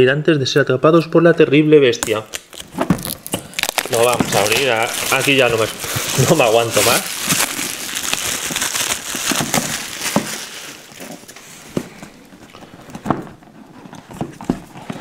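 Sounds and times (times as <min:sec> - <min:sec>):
shrink wrap crinkling: 0:02.0 - 0:13.0.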